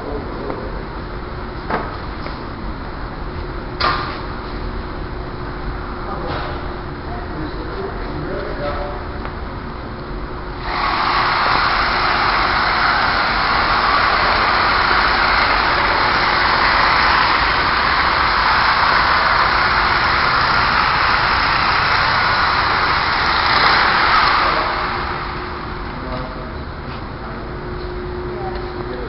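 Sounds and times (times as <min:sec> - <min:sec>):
workshop machinery rushing noise: 0:10.4 - 0:28.4.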